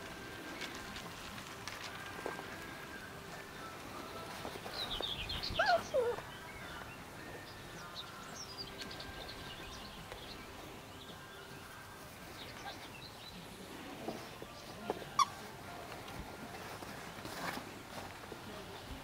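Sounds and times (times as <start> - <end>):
puppies faint high chirps: 4.7 - 7.5, 15.1 - 15.5
puppy whine-yelp: 5.5 - 6.3, 15.1 - 15.4.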